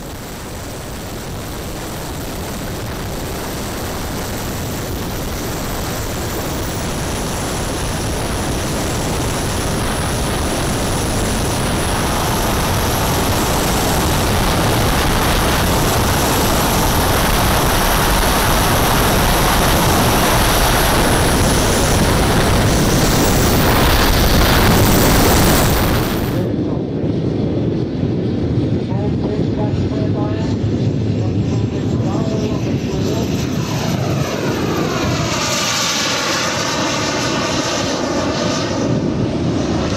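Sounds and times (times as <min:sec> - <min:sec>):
high turbine whine: 0:00.0 - 0:39.9
wind rushing: 0:00.0 - 0:39.9.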